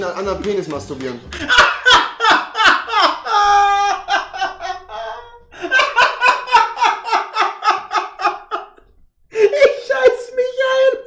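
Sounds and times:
man laughing hard: 1.3 - 8.8.

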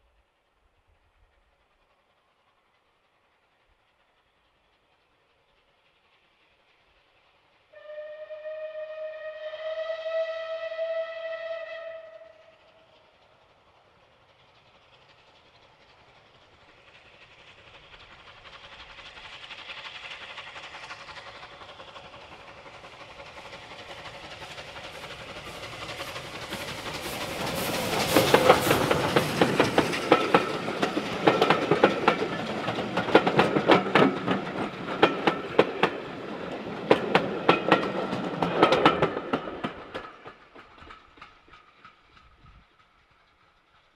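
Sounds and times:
steam train passing: 0.0 - 43.9
wheels clattering over rail joints: 20.5 - 43.1.

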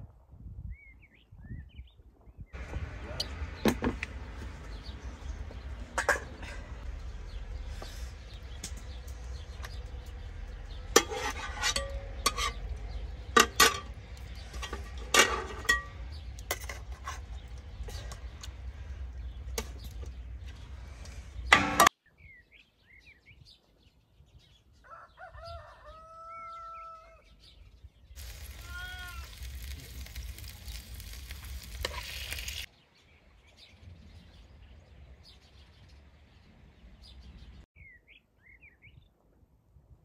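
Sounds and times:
small birds chirping: 0.7 - 15.1, 15.7 - 39.1
low rumbling noise: 2.6 - 21.9
rooster crowing: 24.8 - 27.3.

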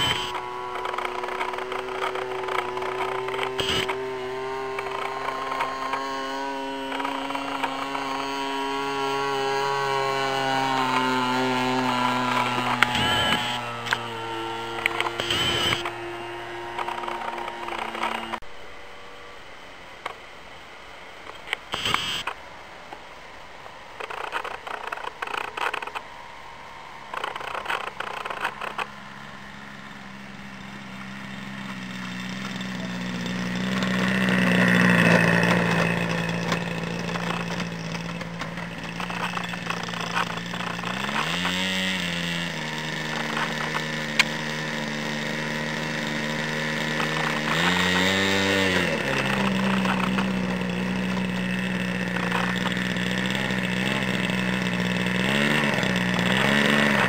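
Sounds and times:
short bursts of noise: 0.0 - 18.4, 21.2 - 23.0
model plane engine idling and revving: 0.0 - 18.5, 24.0 - 57.0.

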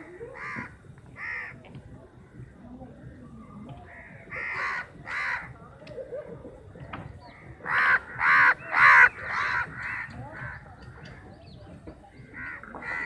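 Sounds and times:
crows cawing: 0.4 - 1.6, 3.9 - 5.5, 7.3 - 10.6, 12.3 - 13.0.

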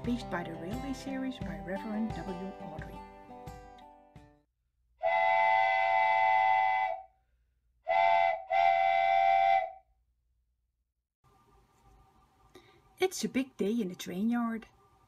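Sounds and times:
steam locomotive whistle blasts: 5.0 - 7.1, 7.9 - 9.8.

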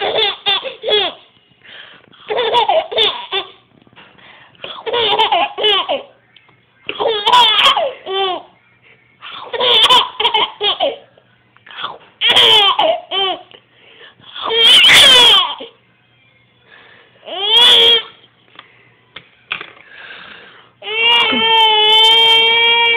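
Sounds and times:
baby laughing: 0.0 - 1.3, 2.2 - 3.6, 4.6 - 6.2, 6.9 - 8.5, 9.3 - 11.1, 12.2 - 13.6, 14.4 - 15.7, 20.8 - 22.9.

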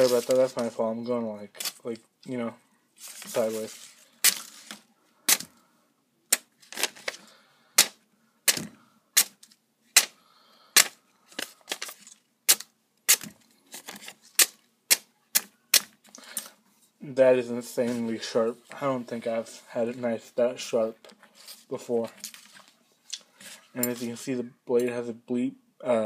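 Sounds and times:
knife slicing through paper: 0.0 - 0.7, 3.0 - 5.4.

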